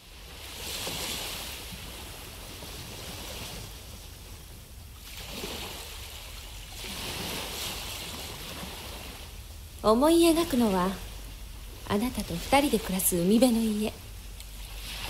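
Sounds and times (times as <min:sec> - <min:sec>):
ocean waves washing onto shore: 0:00.0 - 0:15.0.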